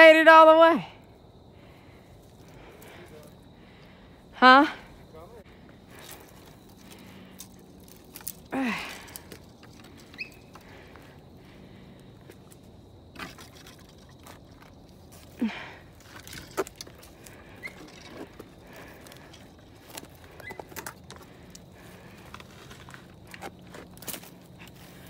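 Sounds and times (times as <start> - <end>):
twigs cracking: 5.7 - 25.0.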